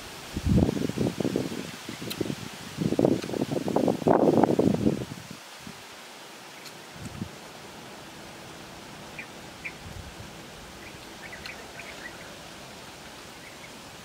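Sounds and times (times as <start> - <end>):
steady outdoor hiss: 0.0 - 14.0
small birds chirping: 6.4 - 14.0.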